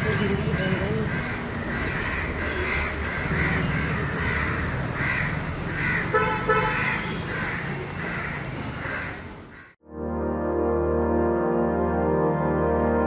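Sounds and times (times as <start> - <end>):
low traffic rumble: 0.0 - 9.8
crows cawing: 0.5 - 9.8
car horn toots: 6.1 - 7.3.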